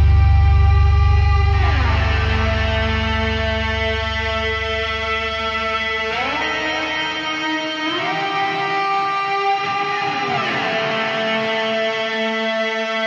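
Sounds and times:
electric guitar sliding note: 0:00.0 - 0:12.6
heavy metal song: 0:00.0 - 0:13.0.

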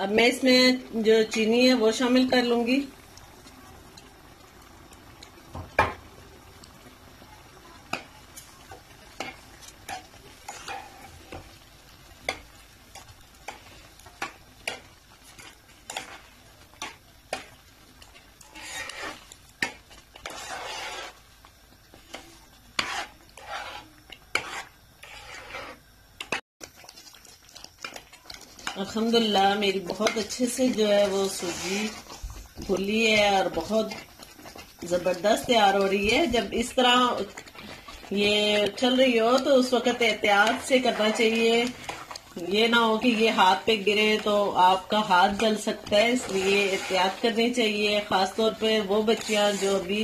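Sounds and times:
thick mixture bubbling: 0:00.0 - 0:50.0
metal spoon scraping a pan: 0:09.1 - 0:11.6, 0:12.2 - 0:21.2, 0:22.0 - 0:26.4, 0:27.8 - 0:29.0, 0:29.7 - 0:32.2, 0:32.9 - 0:50.0.

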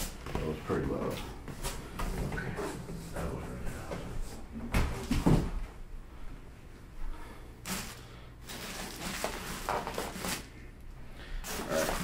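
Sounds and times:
foam and plastic rubbing and crinkling: 0:07.6 - 0:10.6, 0:11.4 - 0:12.0.

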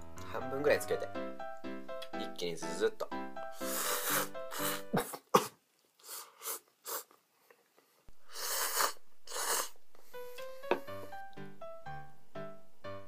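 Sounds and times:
person slurping noodles: 0:03.7 - 0:07.2, 0:08.2 - 0:09.8.

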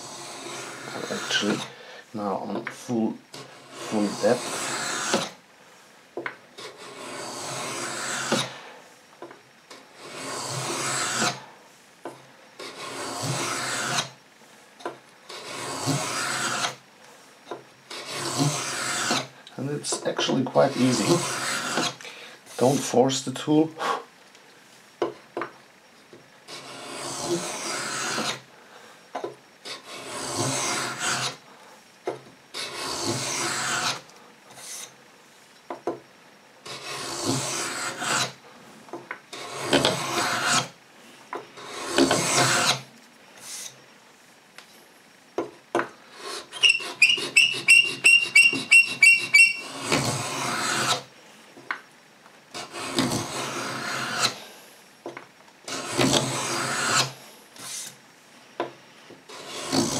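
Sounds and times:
scraping tool rasping on wood: 0:00.0 - 0:01.8, 0:03.3 - 0:05.4, 0:06.6 - 0:08.6, 0:09.7 - 0:11.5, 0:12.6 - 0:14.2, 0:15.2 - 0:16.8, 0:17.9 - 0:22.9, 0:26.5 - 0:28.5, 0:29.6 - 0:31.4, 0:32.5 - 0:35.0, 0:36.6 - 0:38.4, 0:39.3 - 0:40.8, 0:41.5 - 0:43.8, 0:46.1 - 0:51.1, 0:52.5 - 0:54.5, 0:55.7 - 0:58.0, 0:59.3 - 0:59.9
high-pitched rattling squeak: 0:46.5 - 0:49.8.

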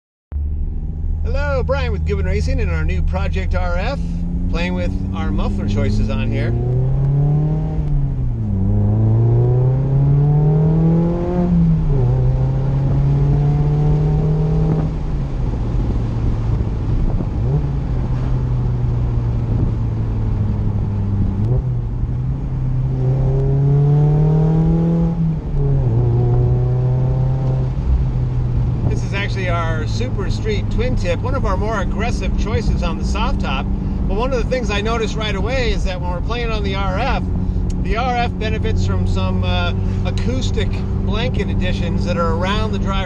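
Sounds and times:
car engine accelerating: 0:00.3 - 0:43.0.

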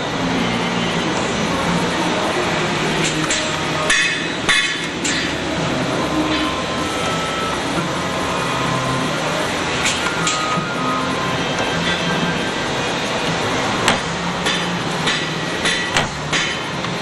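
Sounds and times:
steady machine noise: 0:00.0 - 0:17.0.

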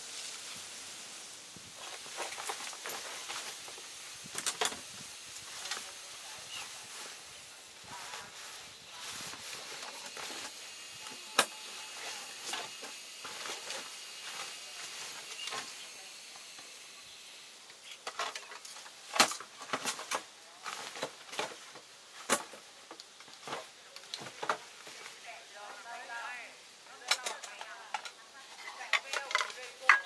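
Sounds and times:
steady hiss: 0:00.0 - 0:30.0
fabric backpack rustling: 0:01.8 - 0:10.6.

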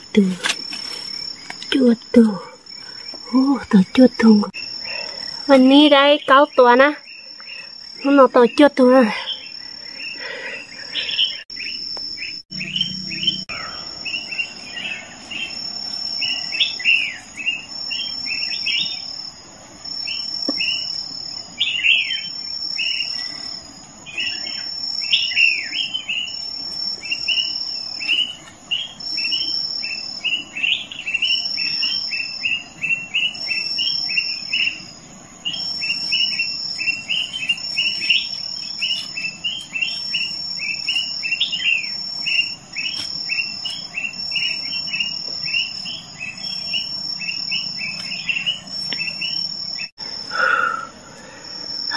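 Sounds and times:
insects calling: 0:00.0 - 0:51.9.

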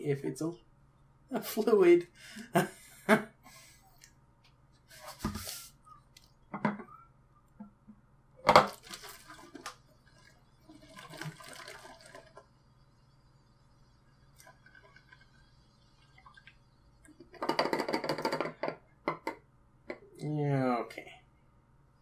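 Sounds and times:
liquid pouring: 0:08.4 - 0:12.8, 0:13.8 - 0:17.4.

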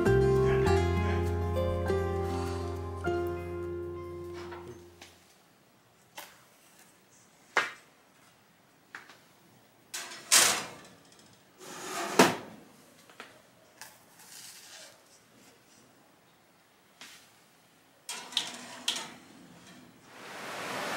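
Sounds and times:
metal pan scraping on oven rack: 0:18.1 - 0:20.0.

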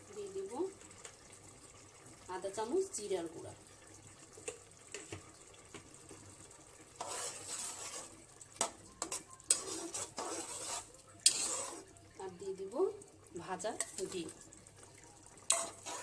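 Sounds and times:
lentils boiling: 0:00.0 - 0:16.0
spatula scraping and knocking pot: 0:07.0 - 0:11.9, 0:15.5 - 0:16.0.

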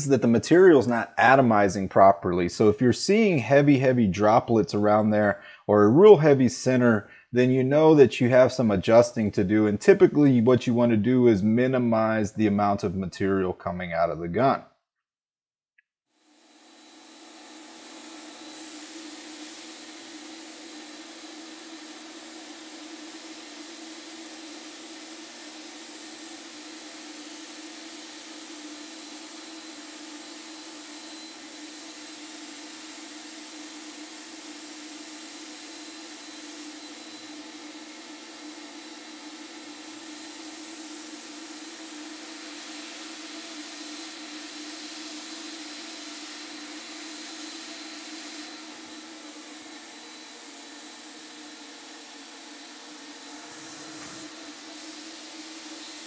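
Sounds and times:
spray gun air hissing: 0:16.3 - 0:56.0.

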